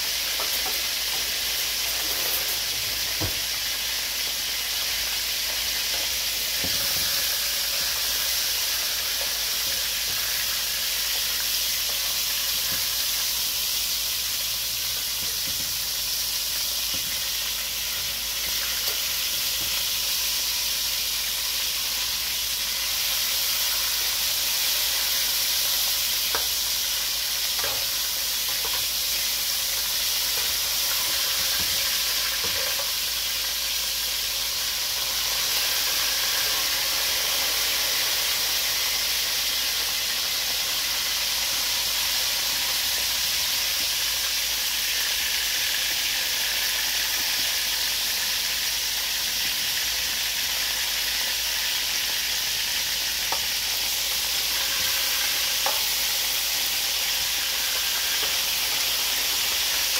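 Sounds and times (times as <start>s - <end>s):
meat sizzling in hot oil: 0.0s - 59.9s.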